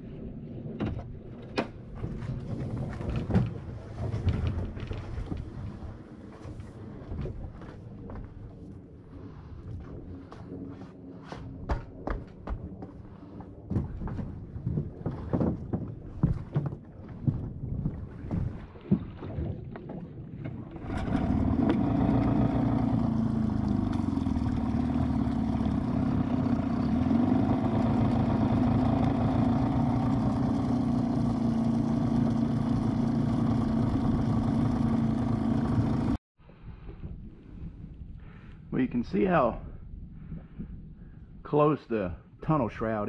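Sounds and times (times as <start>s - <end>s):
knocks and thumps: 11.7s - 13.0s, 13.7s - 19.1s
outboard motor running: 20.7s - 36.2s.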